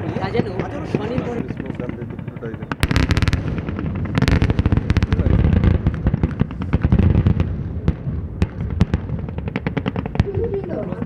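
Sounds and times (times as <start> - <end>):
rapid gunfire: 0.6 - 7.4, 8.7 - 11.0
deep explosion booms: 2.6 - 11.0.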